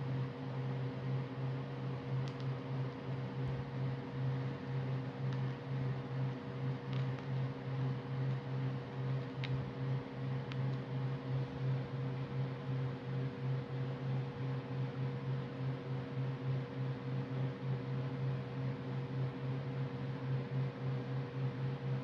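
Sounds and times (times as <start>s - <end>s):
electric fan humming: 0.0s - 22.0s.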